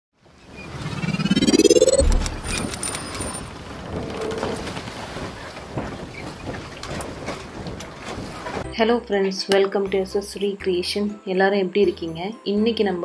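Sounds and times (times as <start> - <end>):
rising whoosh: 0.7 - 3.0
low boom: 1.0 - 2.8.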